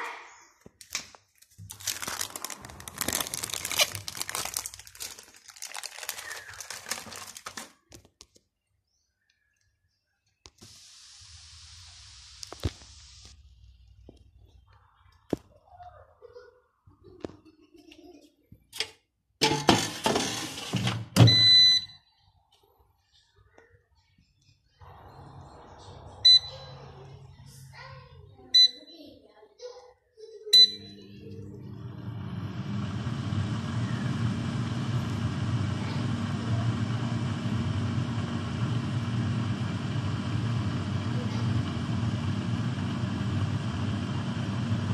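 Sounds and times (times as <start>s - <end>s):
air fryer fan humming: 1.7s - 5.3s, 24.8s - 27.8s, 30.6s - 44.9s
air fryer basket scraping and clatter: 19.4s - 21.3s
short electronic beep: 26.2s - 26.8s, 30.6s - 31.1s.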